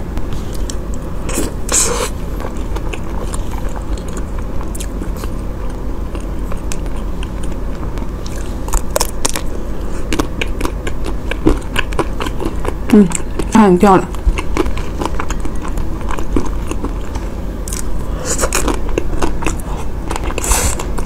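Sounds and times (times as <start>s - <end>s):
steady low hum: 0.0s - 21.0s
person chewing: 0.3s - 21.0s.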